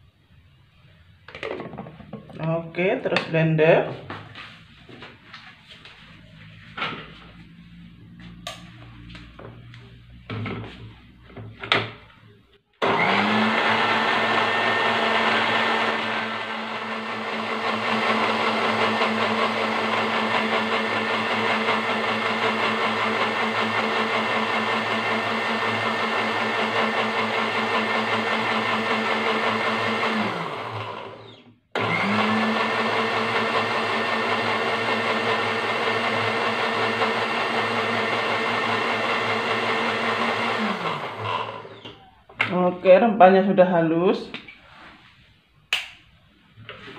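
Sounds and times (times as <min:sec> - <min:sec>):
blender grinding: 0:12.8 - 0:42.1.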